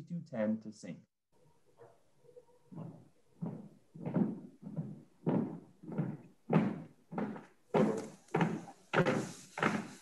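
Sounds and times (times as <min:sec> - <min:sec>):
marching footsteps on stage floor: 0:02.7 - 0:10.0.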